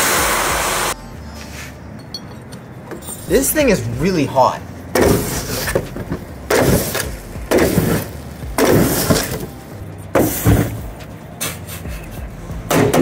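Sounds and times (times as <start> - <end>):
foam burning crackling: 6.3 - 10.9.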